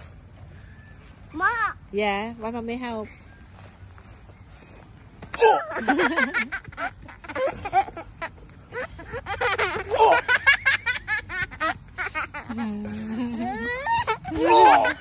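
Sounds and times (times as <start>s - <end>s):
young child laughing and squealing: 8.7s - 15.0s.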